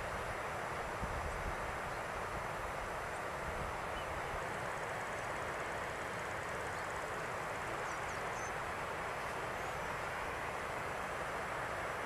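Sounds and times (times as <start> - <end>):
water rushing: 0.0 - 12.0
faint bird chirps: 7.7 - 8.6.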